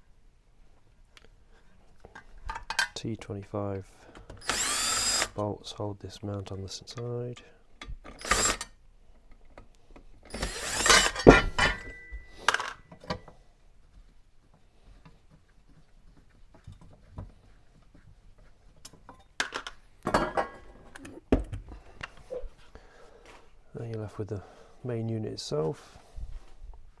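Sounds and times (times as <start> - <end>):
metal tools clattering on workbench: 10.9 - 13.3, 19.1 - 20.7.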